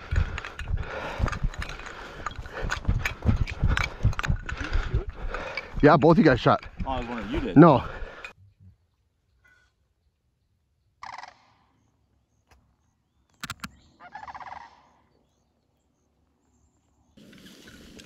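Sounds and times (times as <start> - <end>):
sharp clicks: 13.3 - 13.8.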